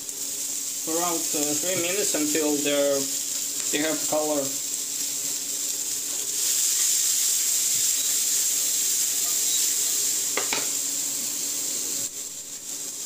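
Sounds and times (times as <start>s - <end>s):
peppers sizzling in a pan: 0.0s - 13.0s.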